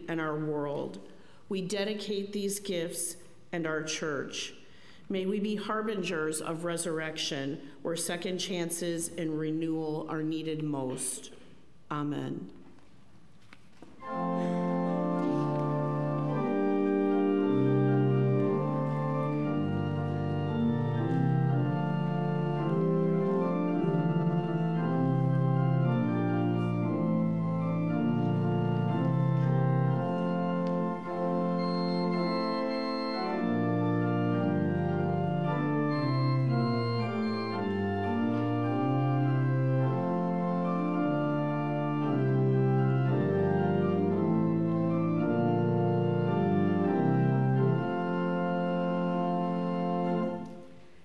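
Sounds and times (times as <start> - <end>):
church organ playing chords: 14.0 - 50.7.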